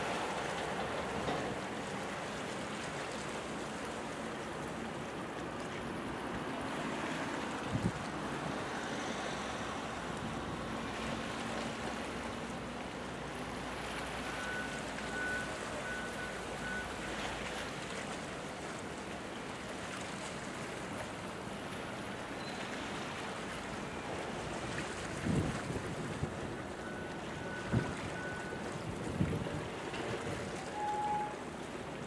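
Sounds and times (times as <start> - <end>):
low rumble of ship engines: 0.0 - 32.0
water wash: 0.0 - 32.0
wind on the microphone: 7.7 - 8.0, 25.1 - 26.4, 28.8 - 29.8.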